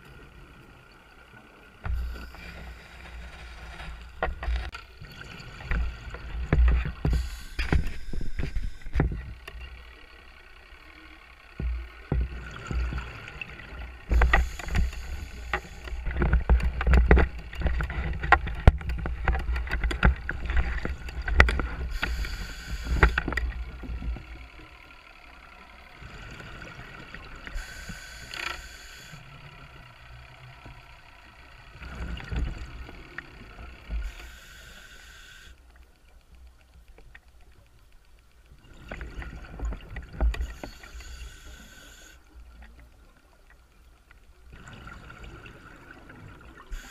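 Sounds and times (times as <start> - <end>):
diver inhaling through regulator: 7.0 - 9.0, 21.9 - 23.4, 27.5 - 29.3, 34.0 - 35.6, 40.4 - 42.2
exhaled bubbles rumbling: 44.5 - 46.7.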